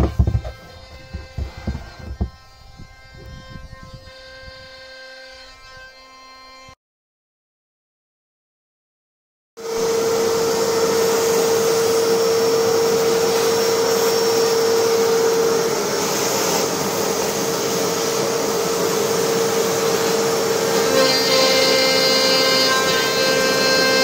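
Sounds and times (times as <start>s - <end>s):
router spindle whining: 0.0s - 6.8s, 9.6s - 24.0s
vacuum hose rushing: 9.6s - 20.9s.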